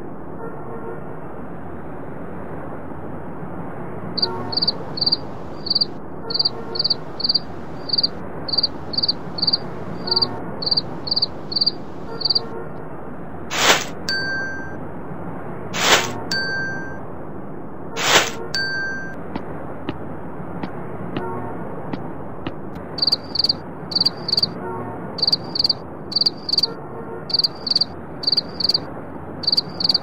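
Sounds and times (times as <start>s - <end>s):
cricket chirps: 4.2s - 12.5s, 23.0s - 24.6s, 25.2s - 26.7s, 27.3s - 30.0s
background hiss: 13.5s - 14.0s, 15.8s - 16.2s, 18.0s - 18.4s.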